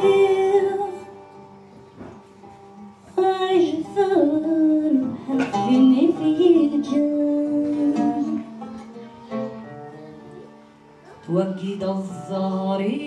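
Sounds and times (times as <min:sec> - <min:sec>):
acoustic guitar: 0:00.0 - 0:13.0
person singing: 0:03.2 - 0:10.5.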